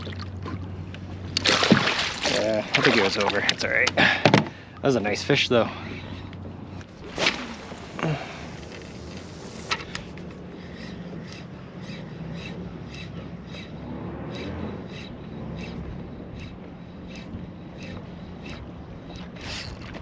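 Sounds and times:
fishing line swish: 0:06.8 - 0:10.1.

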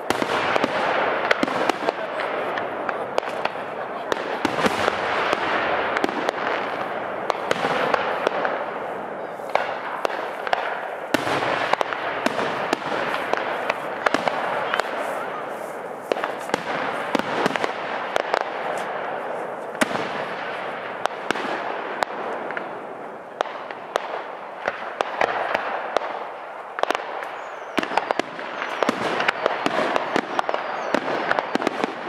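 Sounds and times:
fireworks crackling: 0:00.0 - 0:32.0.

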